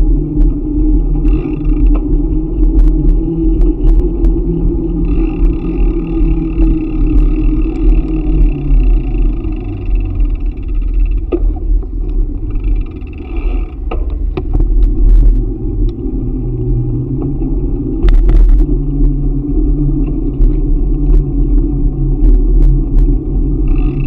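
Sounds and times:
bike clattering over bumps: 0.0s - 15.4s
low steady hum: 0.0s - 24.0s
wind buffeting microphone: 0.0s - 24.0s.

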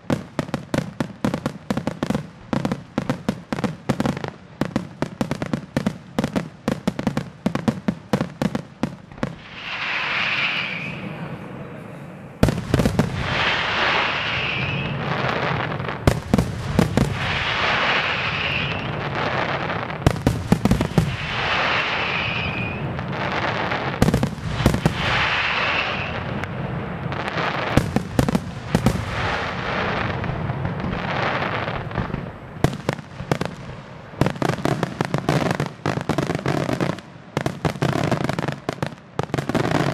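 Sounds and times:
fireworks cracking and banging: 0.0s - 39.9s
firework hissing rush: 9.2s - 11.6s, 12.4s - 26.4s.

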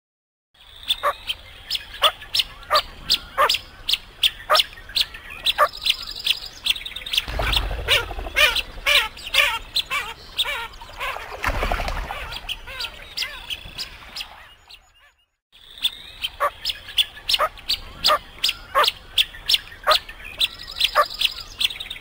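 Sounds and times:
low rumble: 7.2s - 9.4s.

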